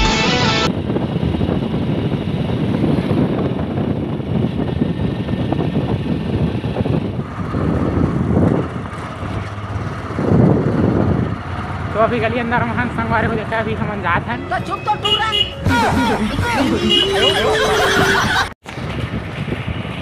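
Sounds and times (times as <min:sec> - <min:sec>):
motorcycle engine and road noise: 0:00.6 - 0:15.7, 0:16.6 - 0:20.0
wind buffeting microphone: 0:00.7 - 0:14.2, 0:17.8 - 0:20.0.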